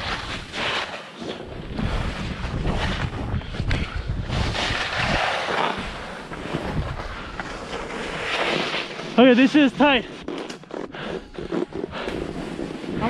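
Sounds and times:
wind rumbling on microphone: 0.0 - 0.6, 1.3 - 8.4
skis hissing through snow: 0.0 - 2.9, 4.3 - 10.1.

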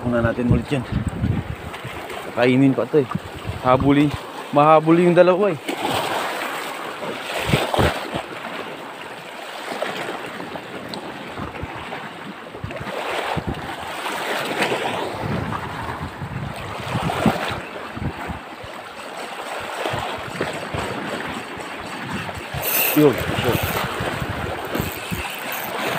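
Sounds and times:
wind buffeting microphone: 0.0 - 4.3, 7.3 - 8.2, 11.1 - 19.0, 19.6 - 25.9
waves washing over rocks: 1.8 - 25.9.

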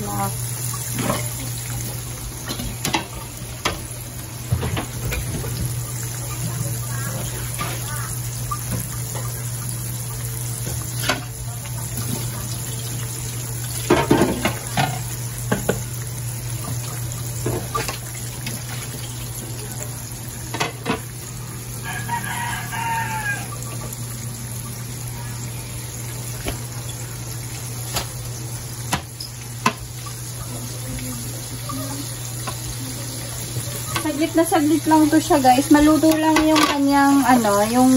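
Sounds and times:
fish frying in oil: 0.0 - 37.9
rooster crowing: 21.8 - 23.7.

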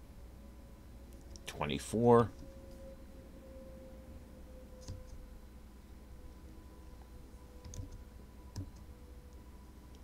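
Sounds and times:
faint steady hum: 0.0 - 10.0
keyboard keystrokes: 7.6 - 8.9.

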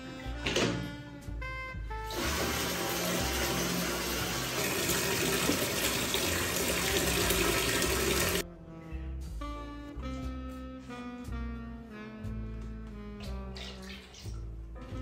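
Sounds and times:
tap water pouring into bucket: 2.1 - 8.4.

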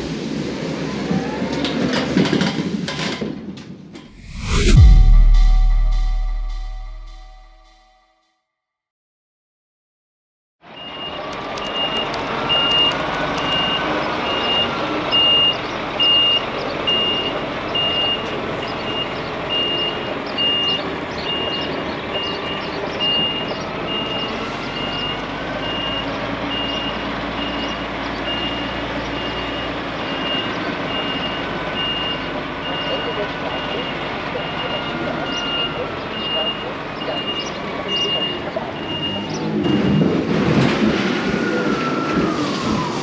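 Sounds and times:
truck reversing alarm beeping: 10.7 - 43.0.

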